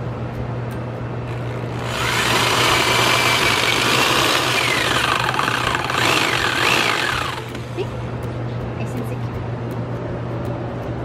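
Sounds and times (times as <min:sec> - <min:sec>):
electric drill motor whine: 0:01.3 - 0:07.8.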